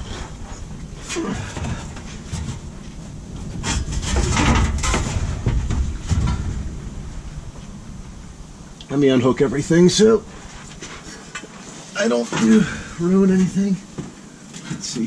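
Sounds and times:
fuel tank rubbing and scraping: 0.0 - 7.7.

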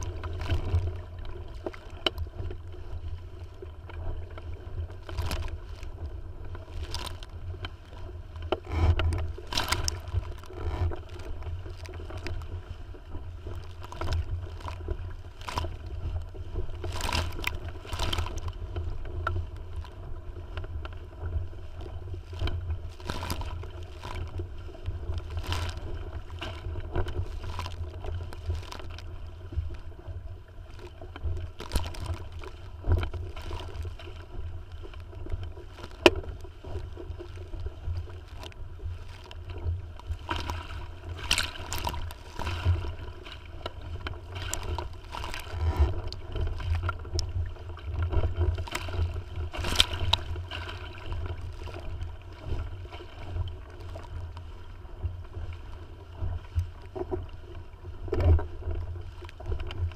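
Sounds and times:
water lapping against boat hull: 0.0 - 59.9
wind rumble on microphone: 0.0 - 59.9.

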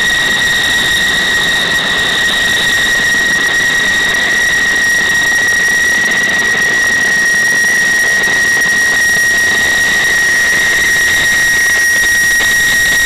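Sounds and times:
jet engine whine and roar: 0.0 - 13.0.

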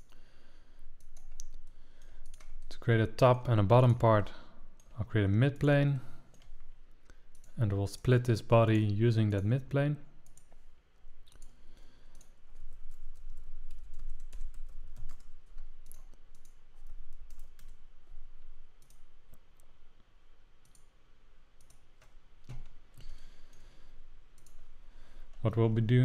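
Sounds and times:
computer mouse clicking: 1.0 - 2.7, 6.3 - 7.6, 10.2 - 10.6, 11.3 - 17.8, 18.8 - 19.7, 20.6 - 20.9, 21.6 - 23.7, 24.4 - 24.7
keyboard clicking: 1.0 - 2.7, 24.4 - 24.6.

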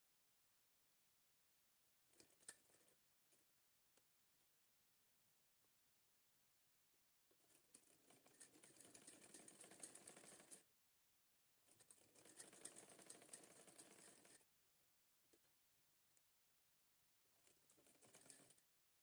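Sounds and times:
sewing machine stitching fabric: 2.0 - 3.5, 7.3 - 10.7, 11.6 - 14.5, 17.3 - 18.8.

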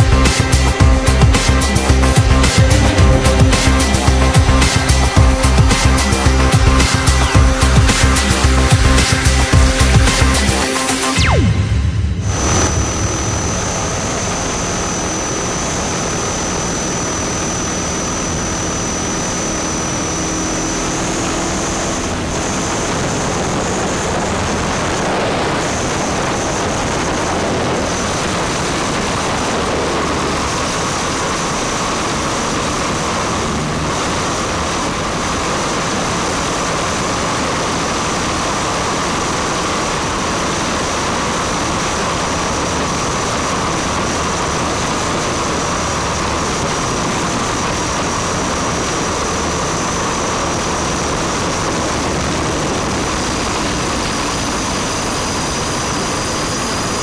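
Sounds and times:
air noise rushing: 0.0 - 16.3
helicopter motor whine: 0.0 - 57.0.

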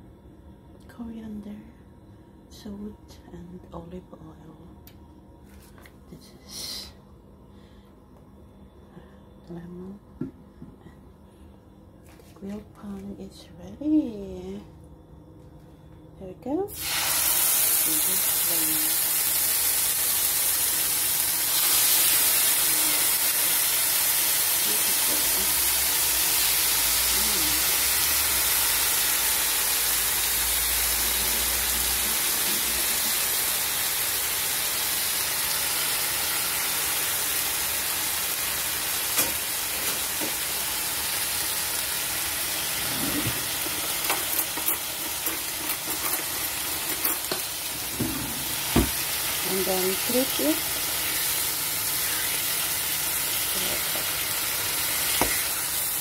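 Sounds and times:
chicken sizzling on grill pan: 16.8 - 56.0.

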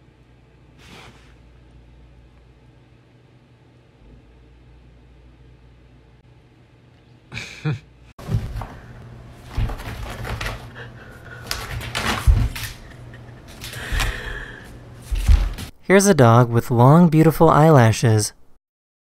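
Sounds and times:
room hum: 0.0 - 18.6
pet thudding and scuffling on floor: 8.2 - 10.8, 11.4 - 14.2, 15.0 - 15.7.

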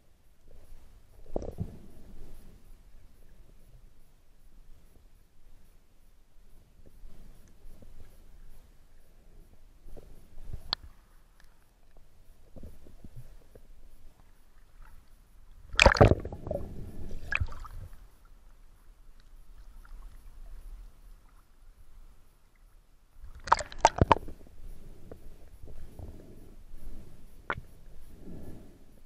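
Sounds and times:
water gurgling and lapping: 15.6 - 18.2, 23.2 - 26.3
water splashing: 15.7 - 18.0, 23.2 - 24.4.

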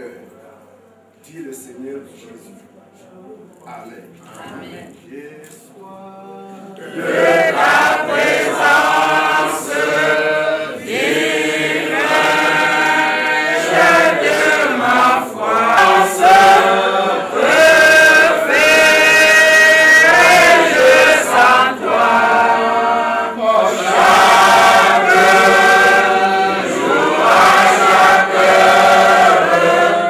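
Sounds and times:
congregation singing a hymn: 6.5 - 30.0.

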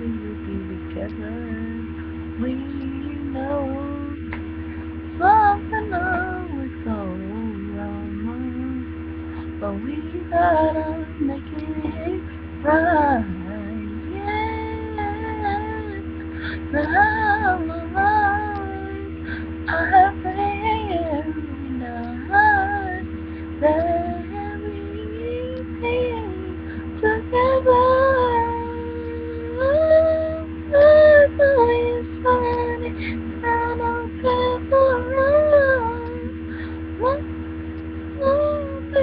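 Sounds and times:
woman singing: 0.0 - 4.4, 5.2 - 37.3, 38.2 - 39.0
low electrical hum: 0.0 - 39.0.

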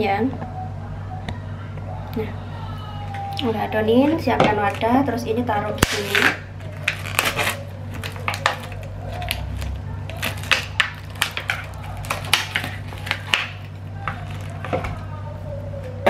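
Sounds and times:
plastic bag crinkling: 5.8 - 15.1.

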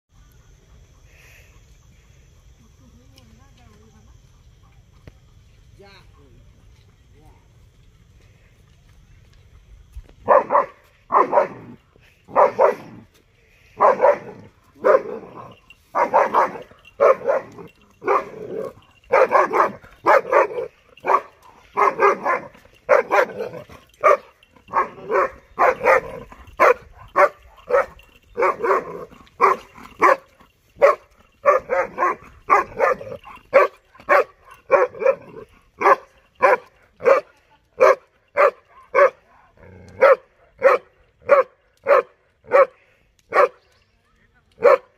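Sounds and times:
puppy barking: 10.2 - 13.0, 13.8 - 39.2, 40.0 - 43.6, 44.6 - 44.9.

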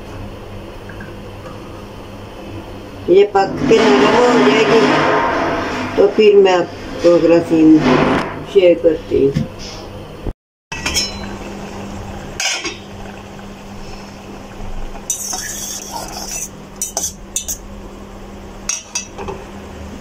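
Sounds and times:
steady low hum: 0.0 - 20.0
fork scraping metal saucepan: 15.1 - 17.6.

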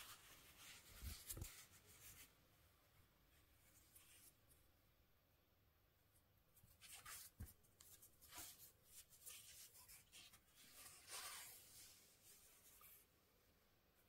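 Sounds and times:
rustling and scraping of handling: 0.0 - 2.4, 6.2 - 13.3.

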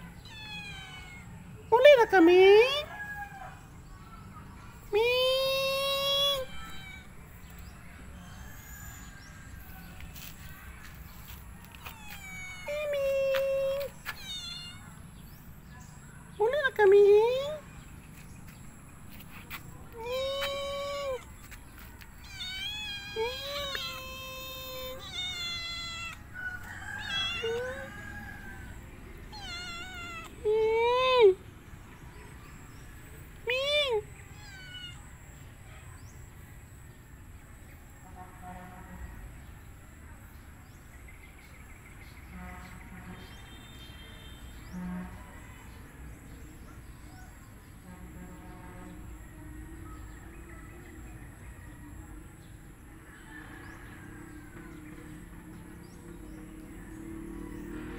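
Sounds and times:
cat meowing: 0.0 - 1.6, 6.0 - 7.2, 8.2 - 9.2, 11.7 - 15.0, 22.2 - 30.4, 34.3 - 35.2.

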